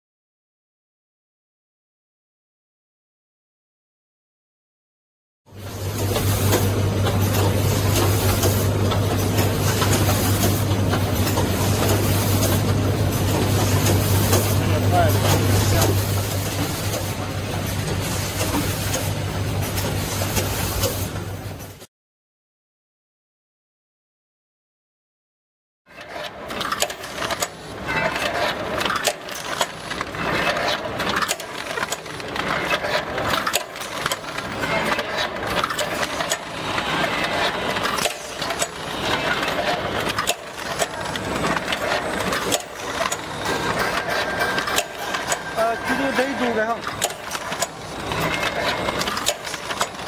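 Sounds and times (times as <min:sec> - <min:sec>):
mechanical clicking and clatter: 0:05.9 - 0:21.8, 0:25.9 - 0:50.0.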